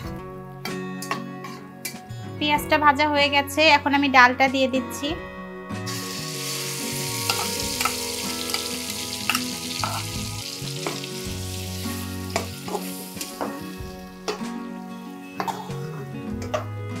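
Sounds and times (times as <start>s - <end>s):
food sizzling in hot oil: 5.8s - 15.3s.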